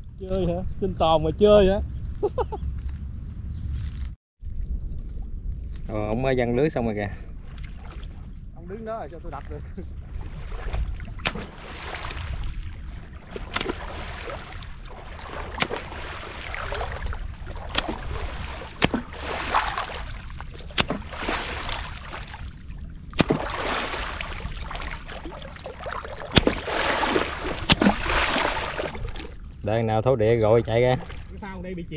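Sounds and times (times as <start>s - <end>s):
water splashing and sloshing: 7.2s - 31.9s.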